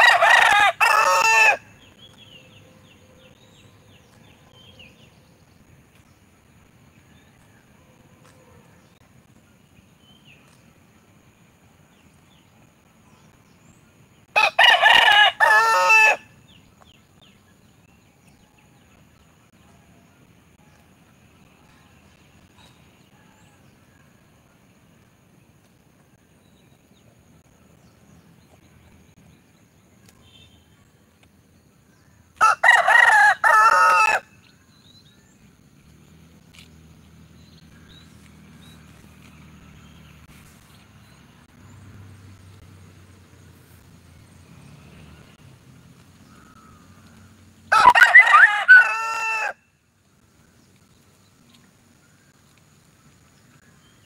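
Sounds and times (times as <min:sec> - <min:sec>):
rooster crowing: 0:00.0 - 0:01.7, 0:14.4 - 0:16.4, 0:32.4 - 0:34.3, 0:47.7 - 0:49.7.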